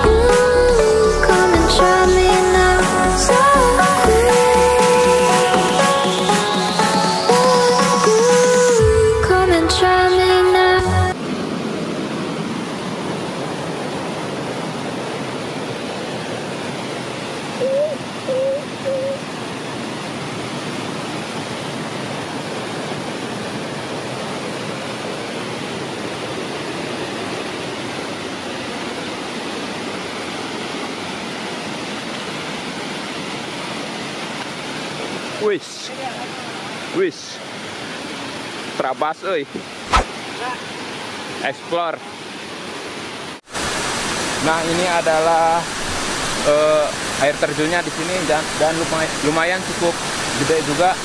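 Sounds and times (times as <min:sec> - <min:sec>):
water pouring down waterfall: 0:12.5 - 0:51.0
short calls: 0:17.6 - 0:19.2.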